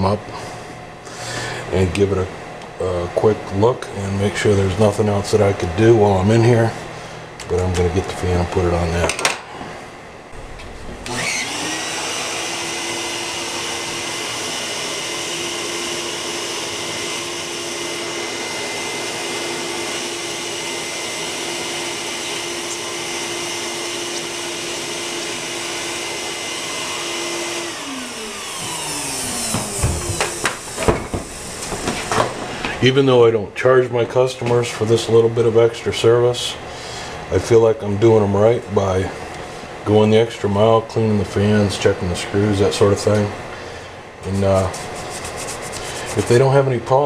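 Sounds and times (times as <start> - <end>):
vacuum cleaner motor whining: 11.0 - 32.8
knocks: 29.5 - 32.3.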